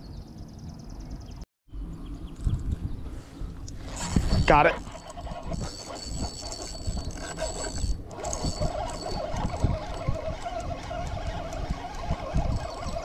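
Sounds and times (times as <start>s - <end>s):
fishing reel gears whirring: 3.8s - 13.0s.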